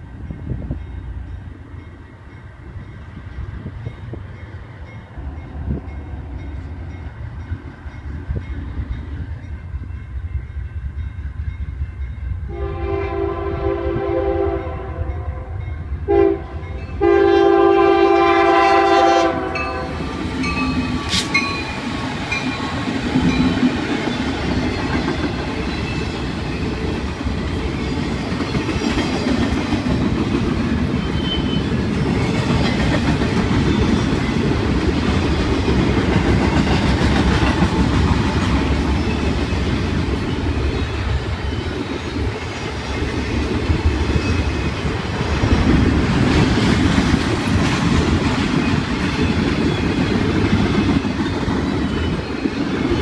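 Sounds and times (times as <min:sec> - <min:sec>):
diesel train rumble: 0:00.0 - 0:53.0
locomotive air horn blasts: 0:12.5 - 0:20.0
train wheels clicking over rail joints: 0:20.0 - 0:53.0.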